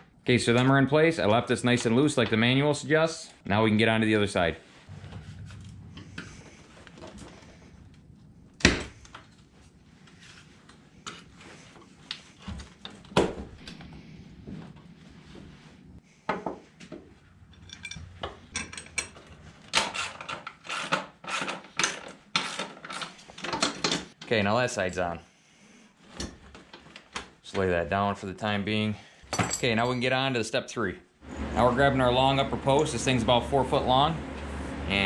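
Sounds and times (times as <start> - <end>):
metal clinks and knocks: 17.5 - 20.5, 29.3 - 30.1.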